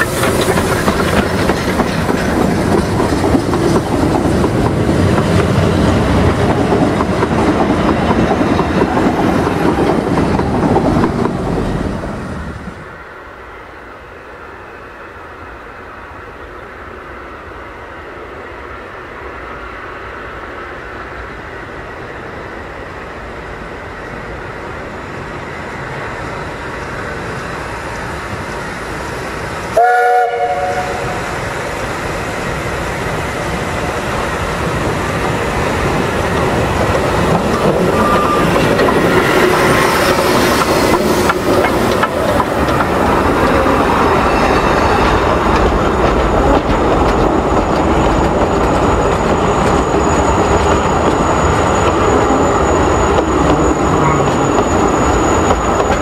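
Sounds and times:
steam train wheel clatter: 0:00.0 - 0:12.9, 0:23.3 - 0:56.0
steam locomotive whistle: 0:29.8 - 0:31.4, 0:37.9 - 0:40.2.

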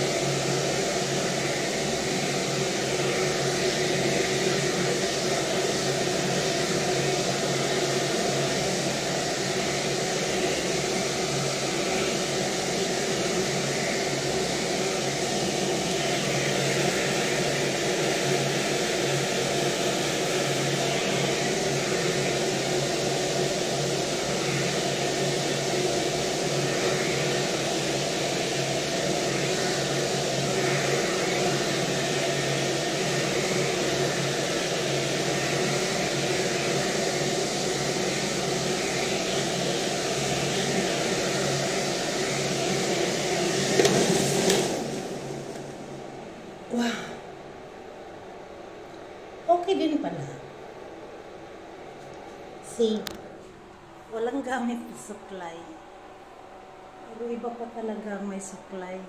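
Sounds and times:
hair dryer running: 0:00.0 - 0:47.0.

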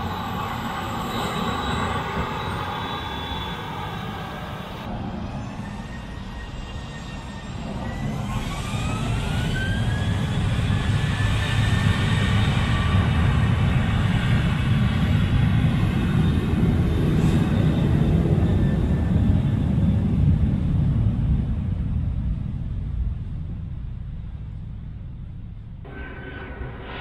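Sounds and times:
jet engines spooling up: 0:00.0 - 0:14.2.

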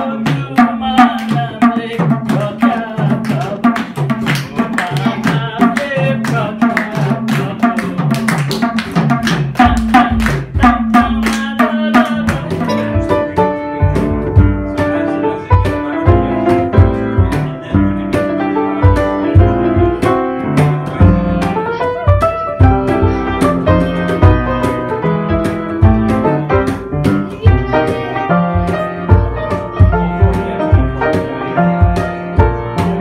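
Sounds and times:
hand drum played quickly: 0:00.0 - 0:33.0
piano chords with deep bass: 0:09.1 - 0:33.0.

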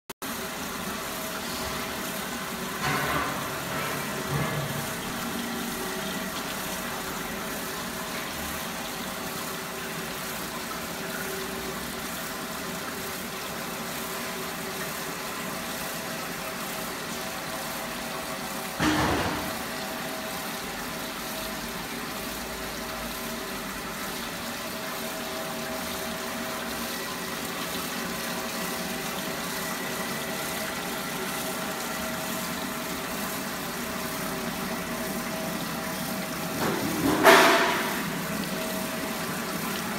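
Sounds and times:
water and slurry flowing: 0:00.2 - 0:39.9.

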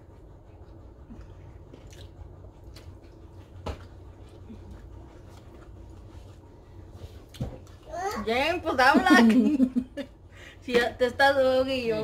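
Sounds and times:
people chewing food: 0:00.1 - 0:07.9.

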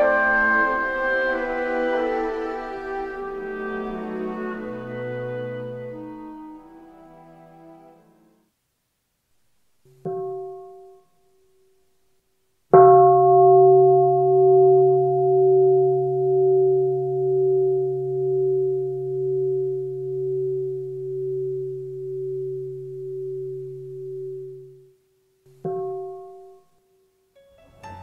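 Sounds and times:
deep bell ringing: 0:12.8 - 0:24.9.

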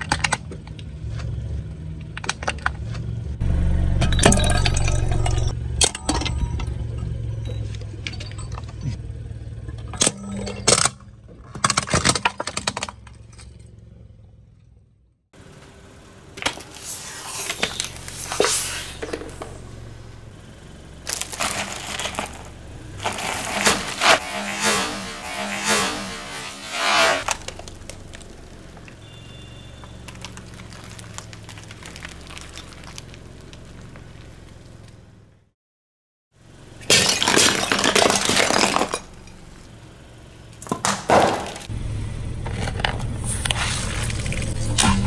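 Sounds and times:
low engine hum: 0:00.0 - 0:11.6, 0:12.9 - 0:35.5, 0:37.7 - 0:45.0
crunching and cracking: 0:21.0 - 0:24.7, 0:27.2 - 0:35.0, 0:36.8 - 0:39.8
plastic bottles crushed by tyre: 0:21.0 - 0:24.7, 0:27.2 - 0:34.3, 0:36.8 - 0:39.3, 0:40.6 - 0:41.7.

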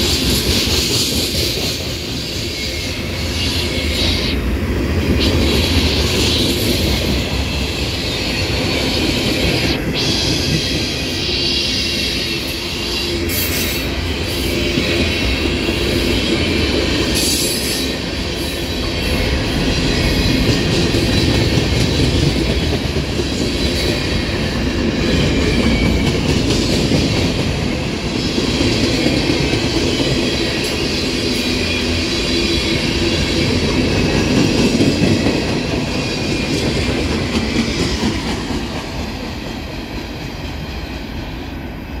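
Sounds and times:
train wheels rumbling on rails: 0:00.0 - 0:42.0.

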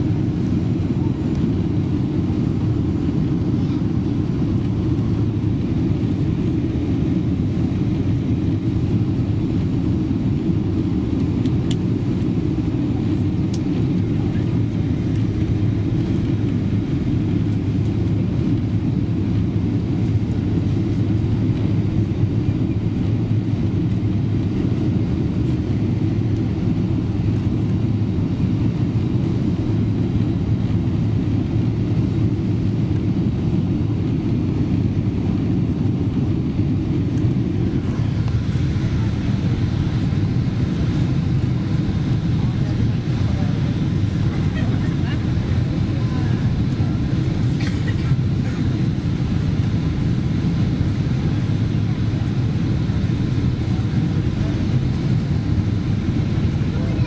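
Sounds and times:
airflow noise: 0:00.0 - 0:57.0
airplane cabin engine rumble: 0:00.0 - 0:57.0.

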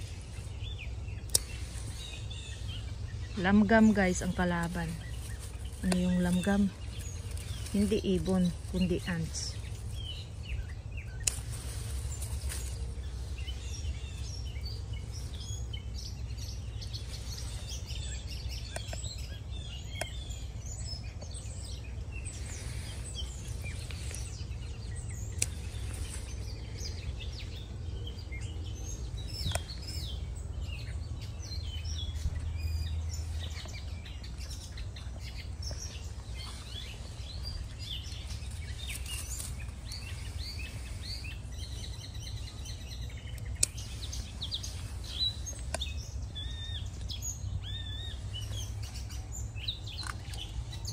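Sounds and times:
small birds chirping: 0:00.0 - 0:50.9
steady low rumble: 0:00.0 - 0:50.9
scissors snipping stems: 0:01.2 - 0:02.2, 0:03.5 - 0:09.2, 0:11.1 - 0:11.7, 0:25.3 - 0:26.4, 0:43.2 - 0:44.7.

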